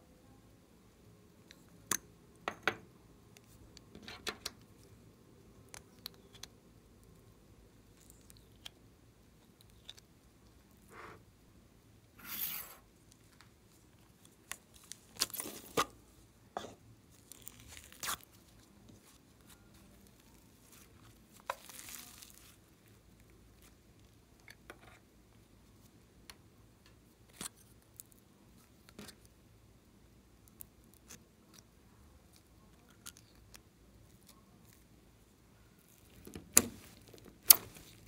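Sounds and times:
slime tearing: 0:17.1 - 0:18.6, 0:20.0 - 0:22.6.

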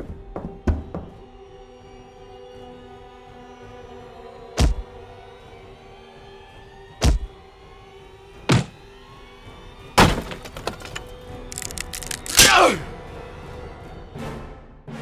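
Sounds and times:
tense music score: 0:00.0 - 0:15.0
fight impact hits: 0:08.5 - 0:08.7.

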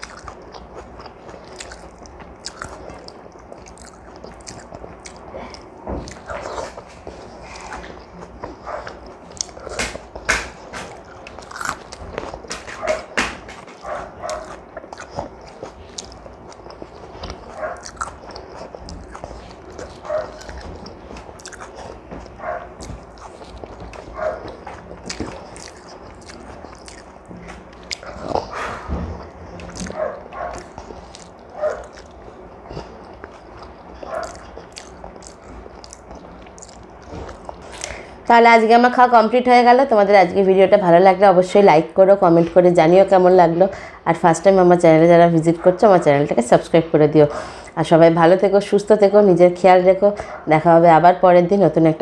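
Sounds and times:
wet chewing and lip smacks: 0:00.0 - 0:38.1.

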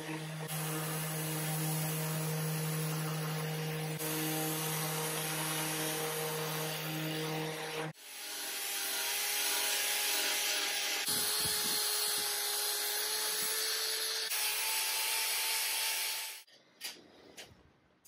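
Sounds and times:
orbital sander humming: 0:00.0 - 0:10.2.

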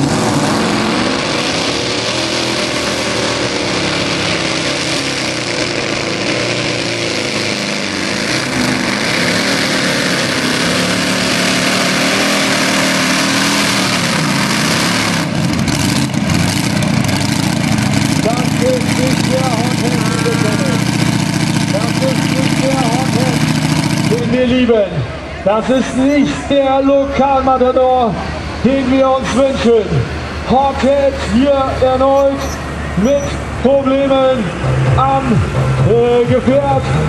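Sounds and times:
tractor engine running hard: 0:00.0 - 0:37.0
announcer speaking: 0:18.2 - 0:21.0, 0:21.6 - 0:37.0.

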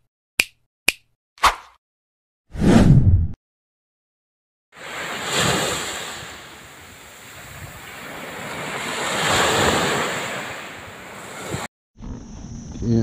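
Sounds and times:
small waves washing on sand: 0:04.8 - 0:11.7.

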